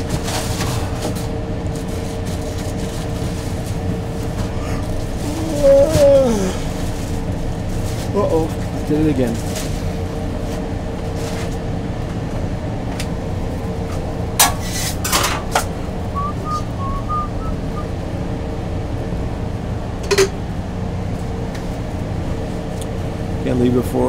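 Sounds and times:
ventilation hum: 0.0 - 24.0
utensils and containers clattering: 14.4 - 15.8, 20.0 - 20.4.

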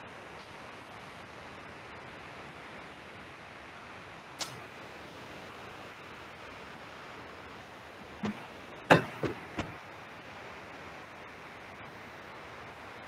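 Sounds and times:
steady low hiss: 0.0 - 13.0
short clicks and knocks: 8.0 - 9.8.

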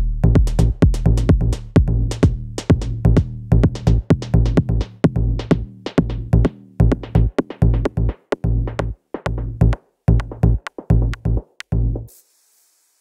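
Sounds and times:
electronic music with heavy bass: 0.0 - 12.1
faint hiss: 12.1 - 13.0.

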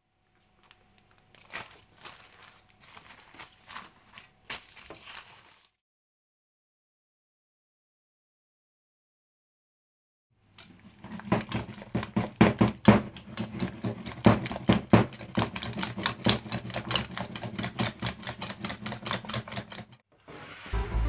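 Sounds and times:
whisk clicking against metal bowl: 10.6 - 20.0.

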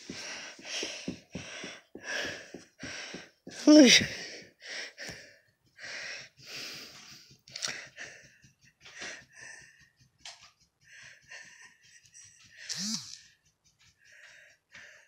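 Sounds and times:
dog sniffing and snuffling: 5.4 - 15.0.

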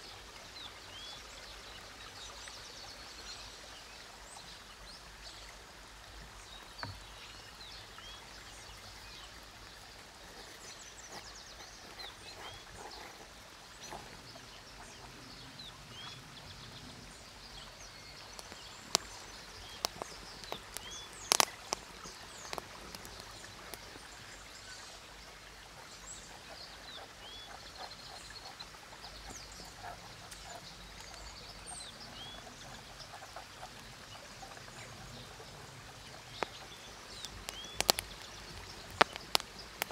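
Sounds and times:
small birds chirping: 0.0 - 39.9
wood fire popping and crackling: 18.3 - 23.9, 36.4 - 39.9.

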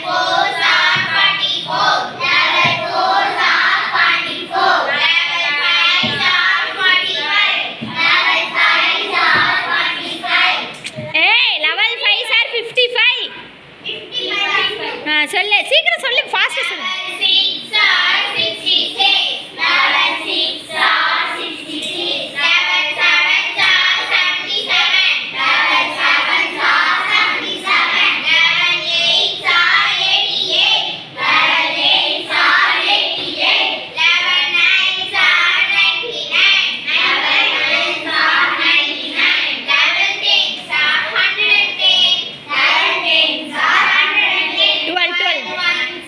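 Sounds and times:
children chanting: 0.0 - 10.8, 16.7 - 46.0.

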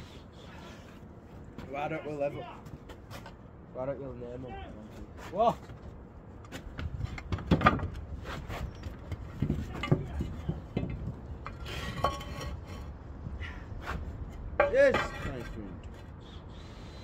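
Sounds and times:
building materials knocking and clinking: 6.8 - 8.0, 8.9 - 12.6.

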